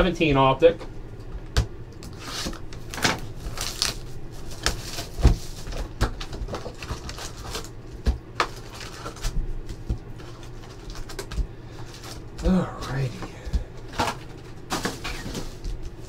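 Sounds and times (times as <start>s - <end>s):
plastic shrink wrap crinkling: 2.1s - 12.3s.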